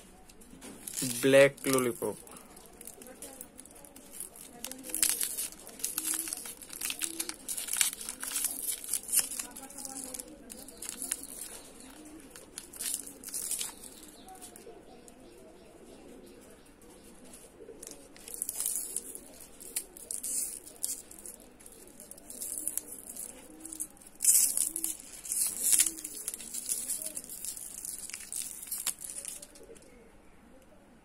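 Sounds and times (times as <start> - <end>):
plastic wrapper crinkling: 0.4 - 14.6, 17.8 - 30.0.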